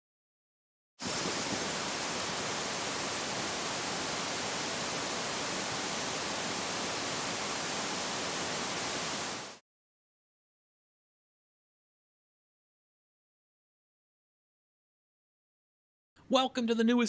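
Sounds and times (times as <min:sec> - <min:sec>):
television static hiss: 0:01.0 - 0:09.6.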